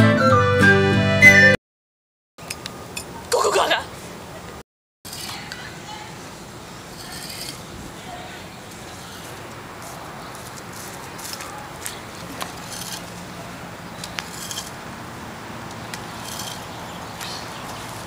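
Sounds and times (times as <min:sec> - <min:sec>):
garden tools scraping mulch and soil: 0:05.1 - 0:06.1, 0:06.8 - 0:14.9, 0:15.7 - 0:18.0.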